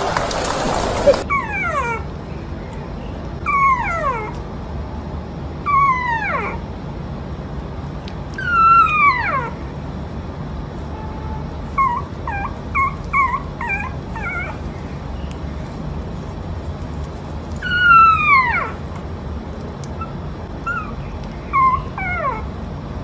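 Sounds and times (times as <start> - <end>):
dog whining: 0.0 - 2.1, 3.4 - 4.4, 5.6 - 6.6, 8.4 - 9.6, 11.7 - 15.0, 17.6 - 18.8, 20.0 - 22.6.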